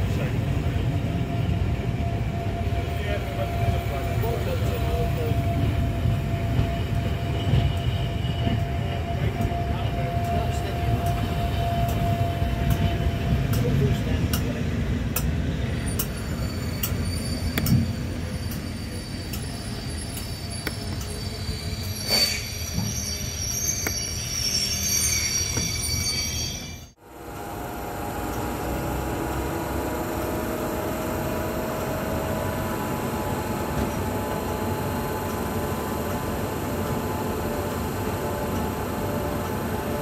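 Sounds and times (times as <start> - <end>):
locomotive humming: 0.0 - 40.0
high-pitched wheel squeal: 15.7 - 27.0.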